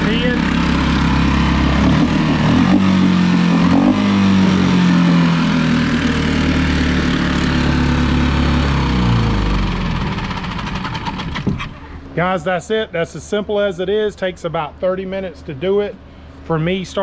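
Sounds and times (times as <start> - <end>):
outboard engine running: 0.0 - 11.8.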